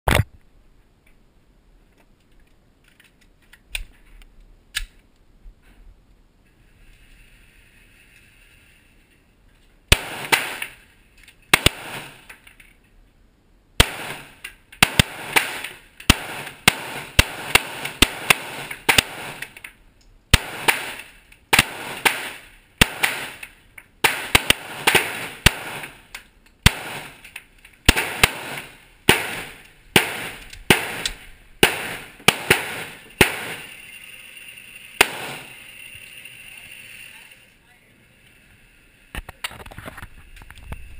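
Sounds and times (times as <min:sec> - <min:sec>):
pistol shots echoing indoors: 0:26.6 - 0:27.1, 0:27.9 - 0:33.8, 0:35.0 - 0:35.6.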